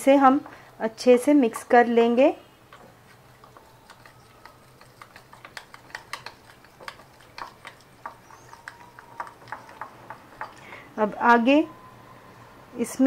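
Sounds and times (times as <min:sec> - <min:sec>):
metal spoon stirring in a bowl: 0:02.7 - 0:10.8.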